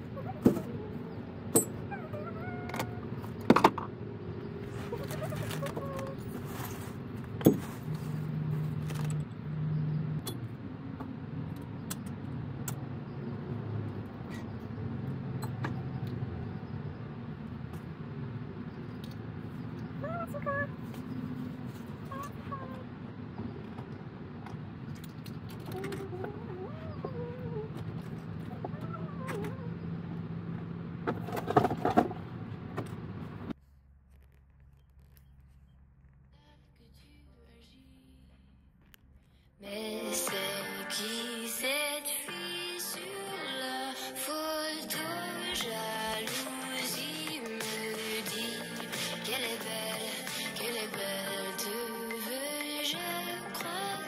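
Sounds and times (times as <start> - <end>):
knocks and clicks on van floor: 7.3 - 7.8.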